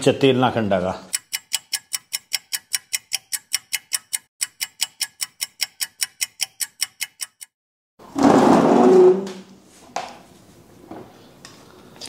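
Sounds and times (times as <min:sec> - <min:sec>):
rapid clock-like ticking: 0:01.1 - 0:07.6.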